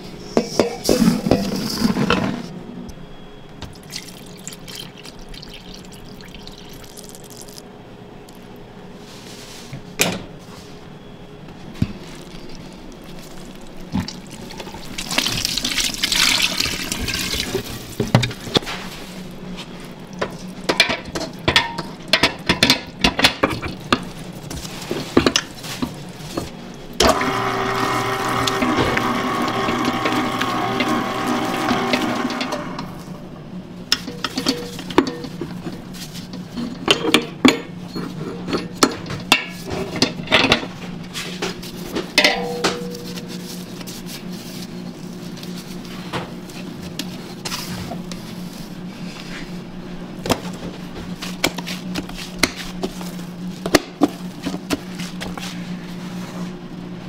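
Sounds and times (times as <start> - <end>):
liquid pouring: 3.8 - 7.6, 14.1 - 17.7
electric motor humming: 27.0 - 33.3
utensils clinking against metal bowl: 33.9 - 40.7, 42.2 - 43.4.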